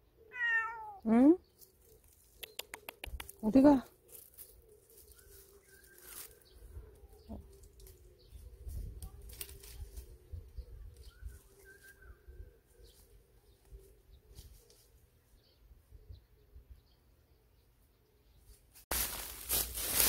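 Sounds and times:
rustling in dry leaves: 1.5s - 2.5s, 3.4s - 15.2s, 18.5s - 20.0s
faint bird chirps: 4.1s - 18.6s.

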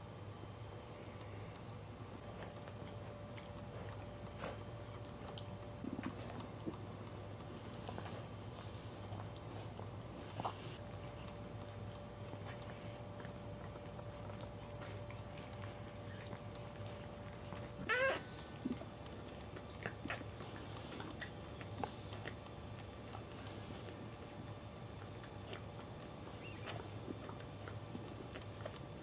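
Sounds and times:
puppies squeaking: 17.8s - 18.3s, 26.4s - 26.8s
puppy rising cry: 17.8s - 18.4s.

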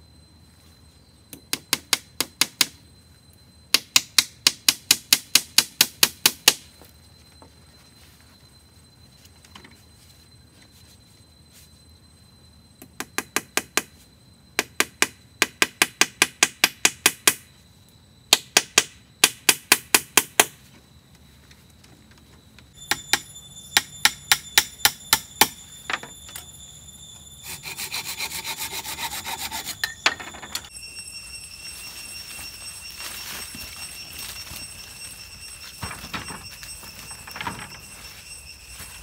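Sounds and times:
saw cutting wood: 27.4s - 30.4s.

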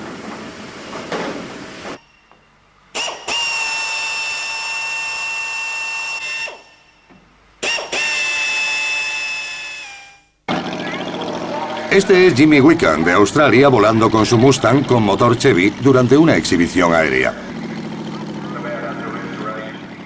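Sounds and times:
drill whining into aluminium: 2.0s - 10.3s.

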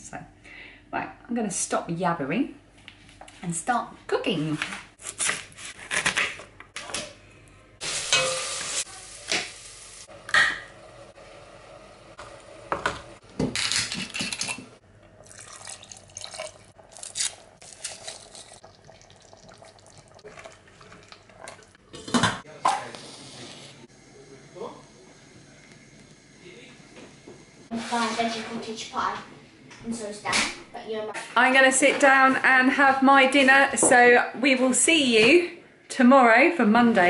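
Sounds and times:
pans and utensils clinking: 8.0s - 9.5s.

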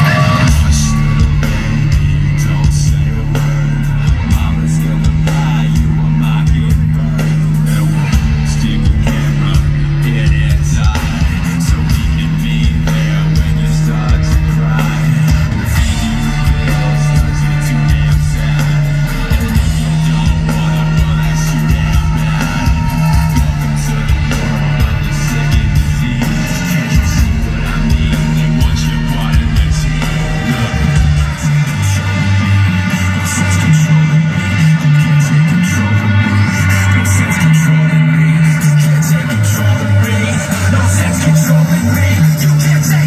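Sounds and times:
drums: 0.0s - 43.0s
electric guitar: 0.0s - 43.0s
person singing: 0.0s - 43.0s.

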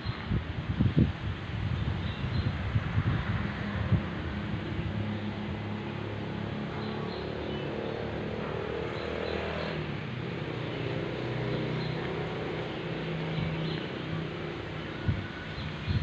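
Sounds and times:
vehicle engine passing: 2.8s - 16.0s.

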